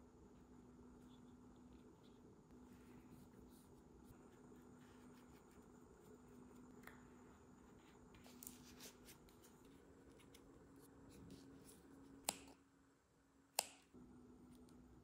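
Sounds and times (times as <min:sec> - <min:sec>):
steady low hum: 0:00.0 - 0:15.0
scissor snip: 0:12.2 - 0:12.6, 0:13.5 - 0:13.9.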